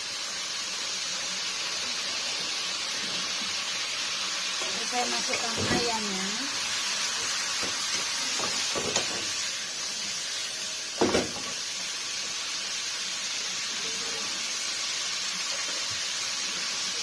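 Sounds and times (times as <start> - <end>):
stir-fry sizzling in a wok: 0.0 - 17.0.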